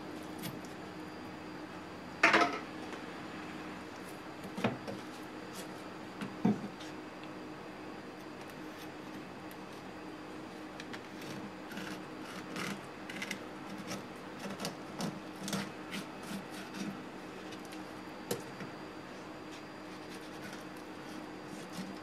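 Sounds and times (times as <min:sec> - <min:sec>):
knife scraping fish: 0:11.2 - 0:17.0, 0:19.5 - 0:22.0.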